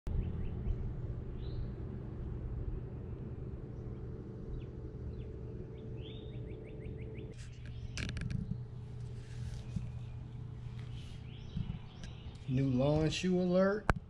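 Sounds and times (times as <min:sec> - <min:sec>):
faint hum: 0:00.1 - 0:14.0
steady low rumble: 0:00.1 - 0:14.0
small birds chirping: 0:02.7 - 0:13.6
bird trill: 0:03.8 - 0:08.8.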